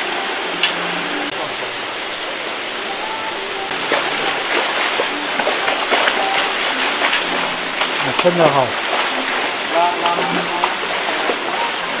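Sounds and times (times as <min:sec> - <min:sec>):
fish splashing at water surface: 0:03.7 - 0:12.0.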